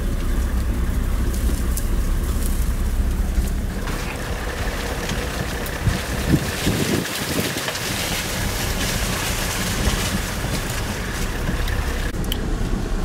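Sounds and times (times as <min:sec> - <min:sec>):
vehicle engine rumble: 0:00.0 - 0:13.0
wind rushing over microphone: 0:05.2 - 0:12.2.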